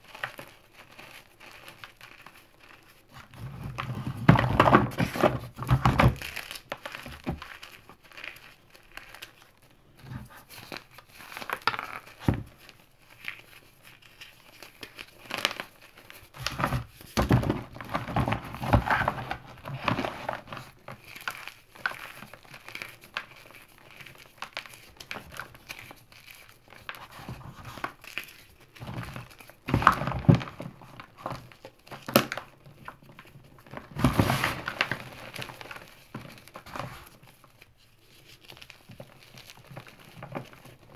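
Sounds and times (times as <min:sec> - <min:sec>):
powdery rustling: 0:00.0 - 0:40.9.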